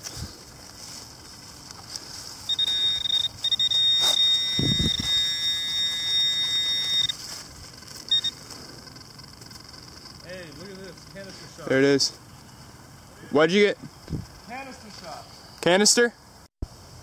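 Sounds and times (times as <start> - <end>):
metal detector high-pitched tone: 2.4 - 7.4, 8.0 - 11.8.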